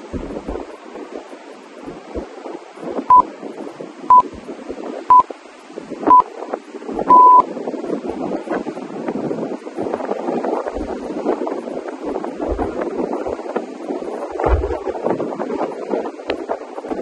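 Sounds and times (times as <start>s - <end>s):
long electronic beep: 7.1s - 7.4s
short electronic beeps: 7.1s - 7.4s.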